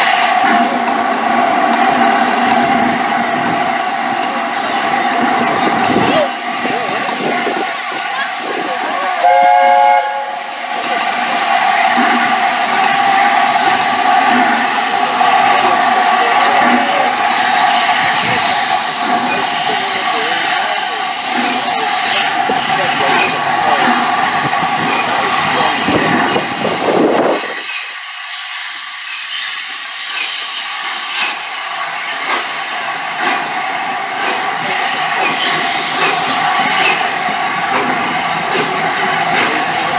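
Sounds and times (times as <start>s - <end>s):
hiss of escaping steam: 0.0s - 39.9s
steam locomotive chime whistle: 9.2s - 10.5s.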